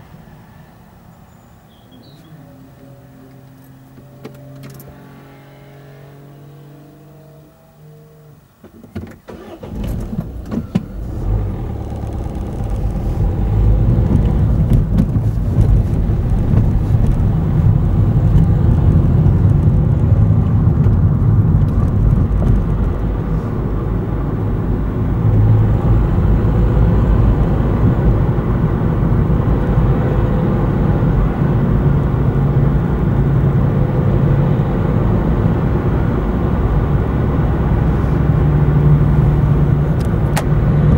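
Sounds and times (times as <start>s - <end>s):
car engine and tyre noise: 0.0s - 40.9s.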